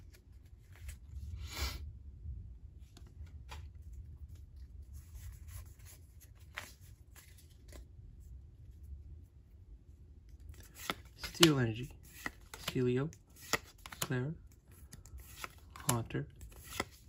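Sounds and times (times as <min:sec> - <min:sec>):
low steady hum: 0:00.0 - 0:17.0
cards crinkling and clicking: 0:10.3 - 0:17.0.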